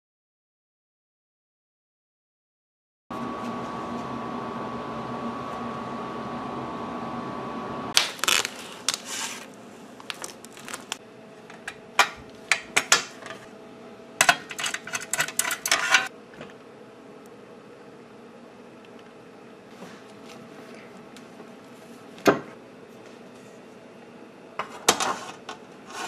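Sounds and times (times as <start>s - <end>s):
background hum with thin whine: 3.2s - 26.0s
metal screws and nuts clinking: 14.2s - 16.1s.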